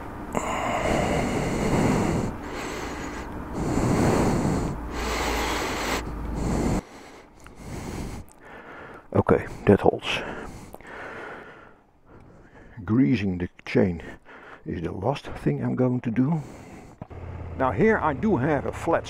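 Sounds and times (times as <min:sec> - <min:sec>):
low rumble: 0:00.0 - 0:06.8, 0:16.6 - 0:19.0.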